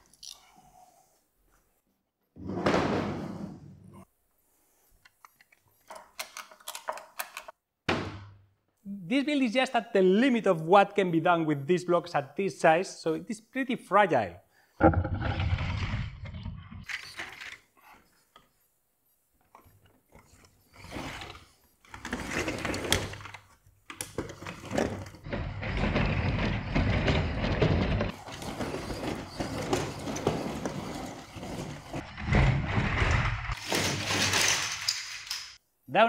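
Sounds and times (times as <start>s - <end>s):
plastic tracks scraping on wood: 24.2s - 34.1s.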